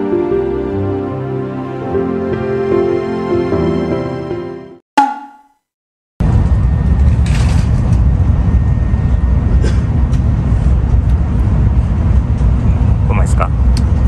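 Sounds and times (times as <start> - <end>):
chime sound effect: 5.0 - 5.6.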